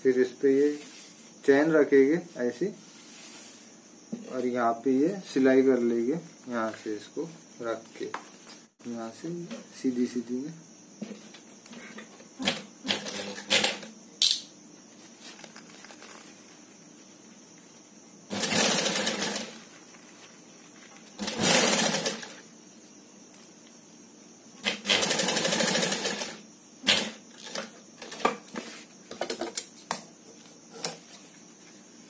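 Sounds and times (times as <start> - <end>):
sewing machine stitching: 18.3 - 19.6, 21.2 - 22.4, 24.6 - 27.6.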